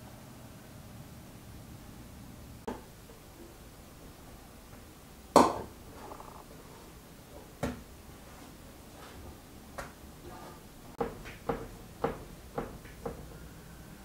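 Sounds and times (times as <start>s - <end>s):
dough kneading knocks: 11.0s - 13.3s.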